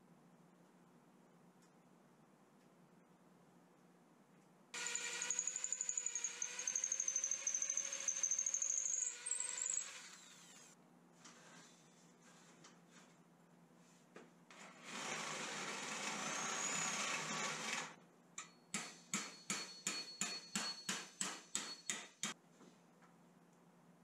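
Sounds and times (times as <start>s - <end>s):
electric drill boring into wood: 4.8s - 10.8s, 14.6s - 18.0s
hammer striking bolt: 18.7s - 22.4s.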